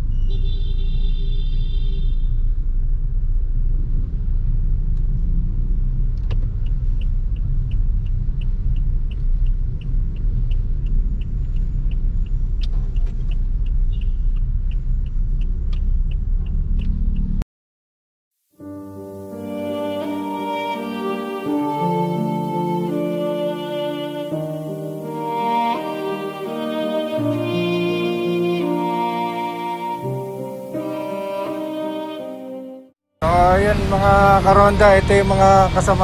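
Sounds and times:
car engine and road rumble: 0:00.0 - 0:17.4, 0:33.2 - 0:36.0.

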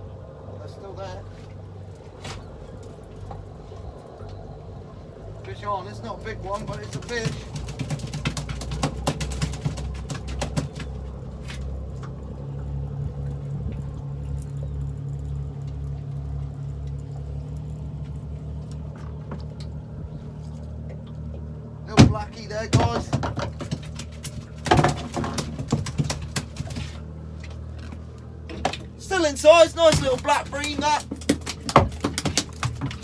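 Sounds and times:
boat engine idling: 0:00.0 - 0:33.0
knocking and rattling: 0:06.7 - 0:11.0, 0:22.0 - 0:27.0, 0:29.8 - 0:33.0.

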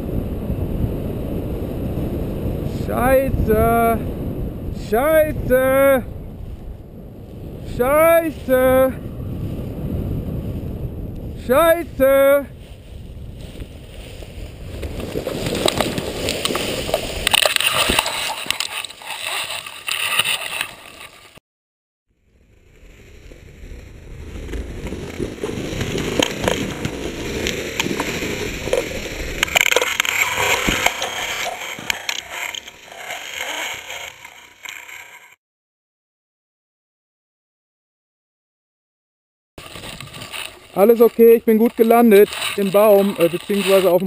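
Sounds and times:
pine branches rustling and scraping: 0:12.5 - 0:21.4, 0:24.4 - 0:35.4, 0:39.6 - 0:44.0
branches cracking: 0:12.6 - 0:21.4, 0:24.4 - 0:35.4, 0:39.6 - 0:44.0.

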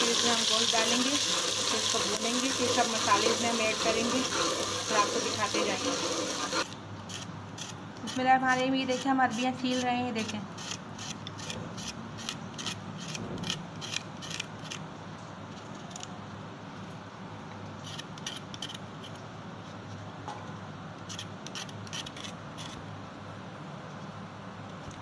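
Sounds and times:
knife scraping root skin: 0:02.4 - 0:14.8, 0:17.8 - 0:19.2, 0:21.0 - 0:22.8.

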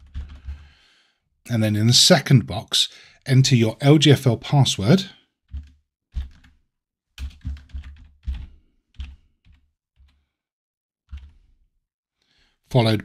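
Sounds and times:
typing on computer keyboard: 0:00.0 - 0:00.8, 0:05.5 - 0:06.6, 0:07.2 - 0:10.2, 0:11.1 - 0:11.5.

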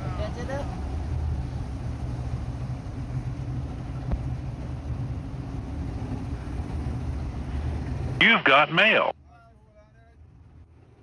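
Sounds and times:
outboard motor running: 0:00.8 - 0:08.2.

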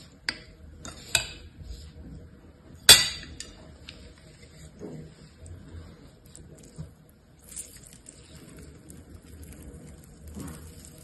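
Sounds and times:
gel beads squishing and crackling: 0:07.3 - 0:11.0.

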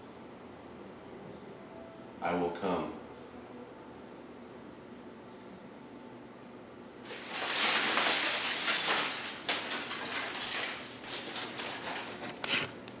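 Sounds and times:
foil blanket crinkling: 0:07.0 - 0:12.7.

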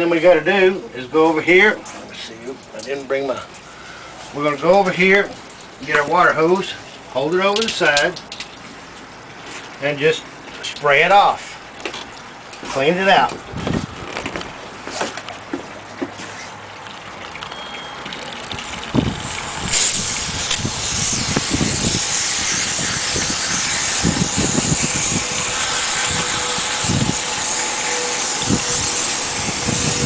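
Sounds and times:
hose spraying water: 0:17.4 - 0:30.0
spray falling into water: 0:19.0 - 0:27.6.

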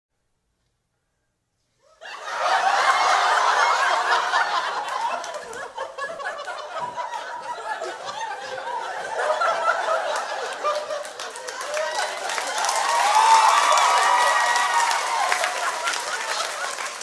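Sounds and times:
audience laughing: 0:02.0 - 0:17.0.

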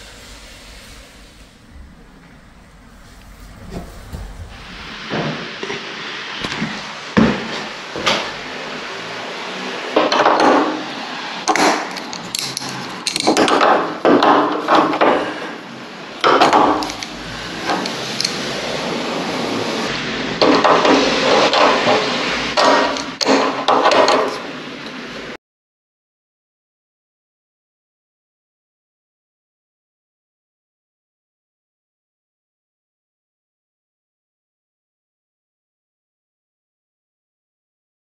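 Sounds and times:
wrench scraping: 0:11.5 - 0:13.6, 0:16.2 - 0:18.4.

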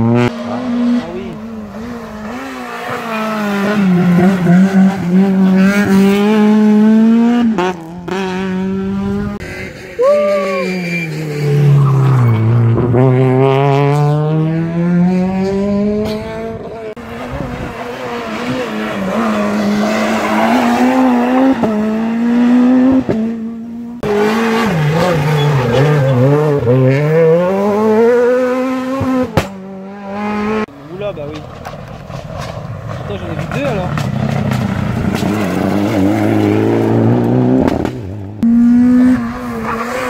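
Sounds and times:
rally car engines passing: 0:00.0 - 0:40.0
tyre squeal: 0:09.9 - 0:12.5, 0:24.9 - 0:26.4.

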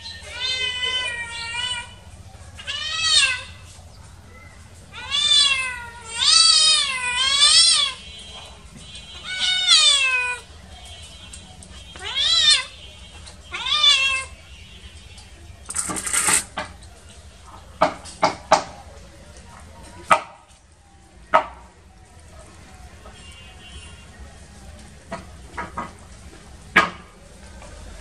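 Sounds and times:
young cat meowing: 0:00.0 - 0:02.0, 0:02.6 - 0:03.6, 0:04.9 - 0:08.0, 0:09.2 - 0:10.5, 0:12.0 - 0:12.7, 0:13.5 - 0:14.3
sharp clatters: 0:15.6 - 0:16.9
rustling: 0:15.6 - 0:17.0.

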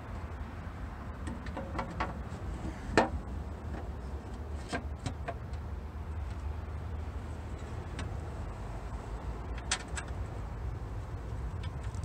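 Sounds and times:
steady low rumble: 0:05.4 - 0:12.0.

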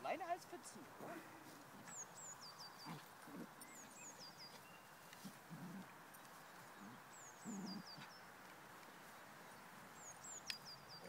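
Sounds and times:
small dogs grunting and growling: 0:02.8 - 0:04.0, 0:05.2 - 0:06.0, 0:06.7 - 0:08.1.

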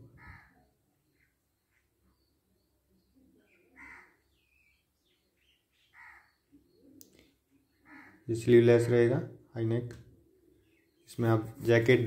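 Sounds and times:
crow cawing: 0:00.1 - 0:00.7, 0:03.7 - 0:04.3, 0:05.9 - 0:06.4, 0:07.8 - 0:08.3.

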